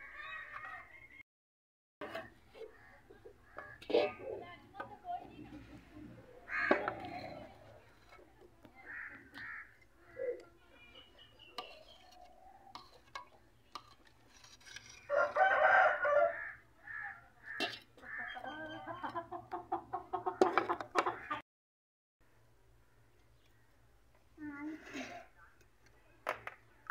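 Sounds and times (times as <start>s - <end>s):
chickens clucking: 2.0s - 14.1s, 17.0s - 21.4s
rooster crowing: 15.1s - 16.6s.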